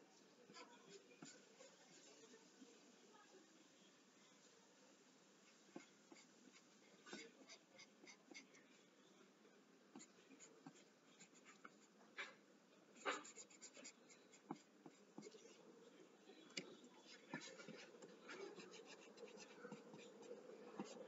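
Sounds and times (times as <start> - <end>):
pencil scratching on paper: 0.5 - 2.1, 5.4 - 8.6, 9.9 - 12.4, 13.0 - 15.6, 17.0 - 21.0.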